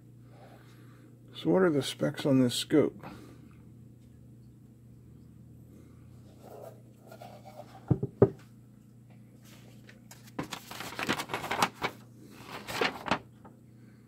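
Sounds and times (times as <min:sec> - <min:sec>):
small box knocking on wooden bench: 0:07.9 - 0:08.4
paper rustling: 0:09.4 - 0:13.5.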